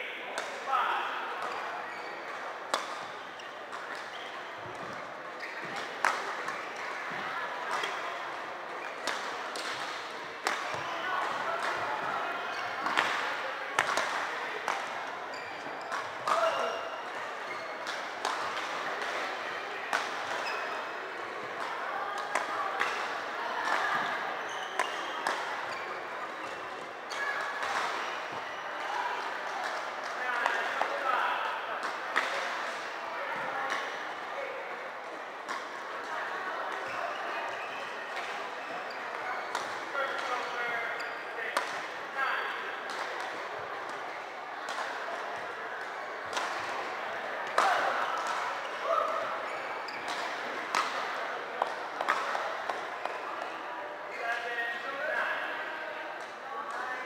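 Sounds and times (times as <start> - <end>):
faint background chatter: 0.0 - 57.0
indoor hall noise: 0.0 - 57.0
sneakers squeaking on court: 15.3 - 17.8, 24.3 - 26.6, 49.5 - 50.3.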